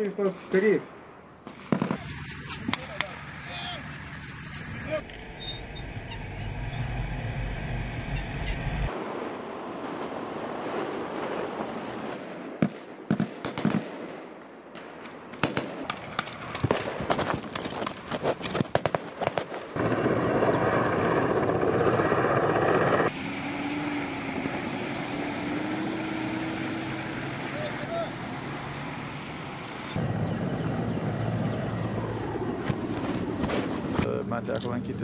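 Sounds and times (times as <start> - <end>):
gunshots: 1.4 - 2.4, 12.1 - 17.3.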